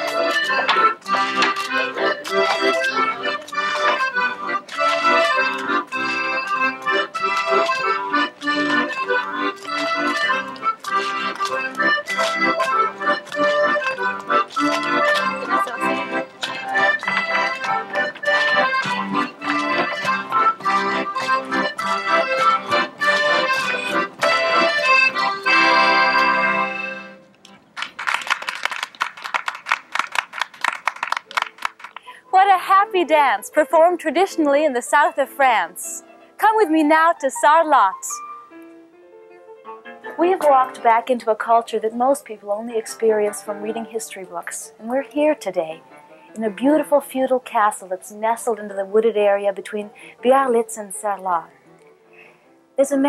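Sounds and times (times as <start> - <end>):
folk dance music: 0.0 - 53.0
quick run of sharp claps: 16.4 - 25.0, 27.8 - 32.1.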